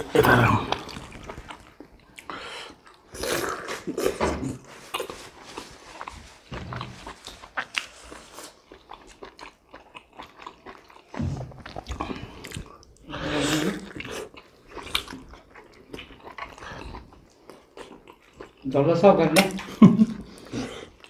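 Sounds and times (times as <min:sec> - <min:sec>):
wet chewing and lip-smacking: 0:06.7 - 0:18.7.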